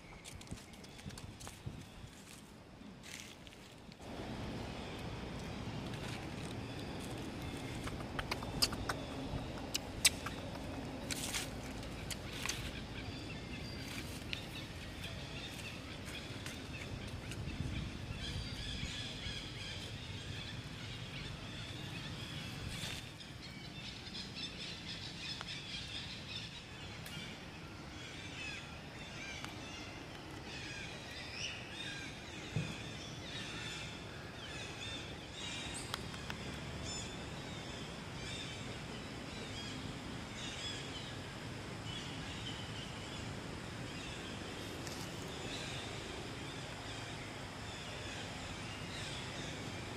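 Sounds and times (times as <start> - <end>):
low steady background noise: 0.0 - 49.9
birds chirping: 4.0 - 49.9
sharp clicks: 7.7 - 11.3.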